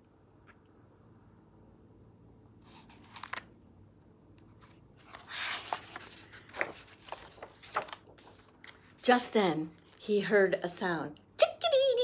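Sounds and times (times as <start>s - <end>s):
book page clicks and rustles: 2.6s - 3.6s, 4.4s - 8.9s
page turning swish: 2.7s - 3.5s, 4.6s - 8.8s.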